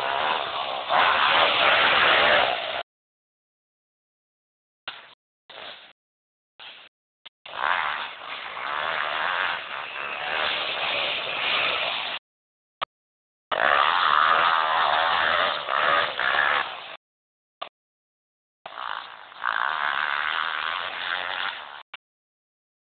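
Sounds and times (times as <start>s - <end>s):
motocross bike engine running: 0.0s - 2.8s, 7.5s - 12.1s, 13.5s - 17.0s, 18.7s - 21.8s.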